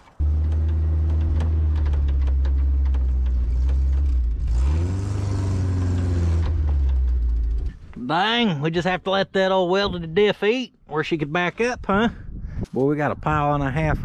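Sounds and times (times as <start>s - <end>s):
pickup engine revving: 0.0s - 8.0s.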